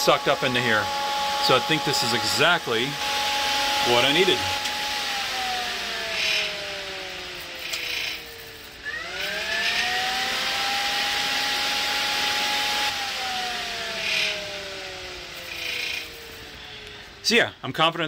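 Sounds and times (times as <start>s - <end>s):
electric fan whining: 0.0s - 17.4s.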